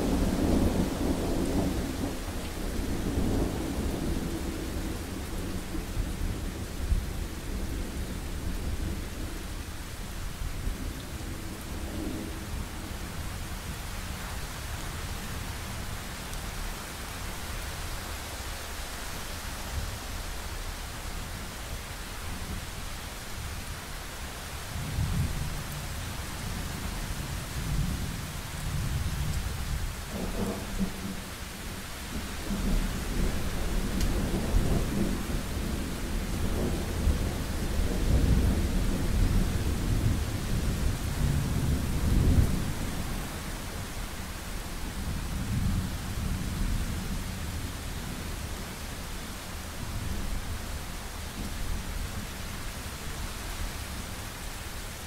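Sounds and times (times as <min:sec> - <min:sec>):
long rolling thunder: 0:00.0 - 0:09.5, 0:26.8 - 0:43.9
low thunder rumbles: 0:00.0 - 0:09.5, 0:26.4 - 0:44.2
steady rain hiss: 0:00.0 - 0:55.0.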